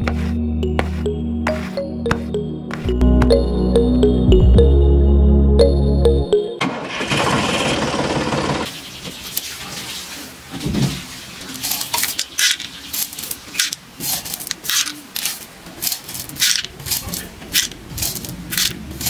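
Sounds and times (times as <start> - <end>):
gravel stones clattering into toy trailer: 11.6 - 18.8.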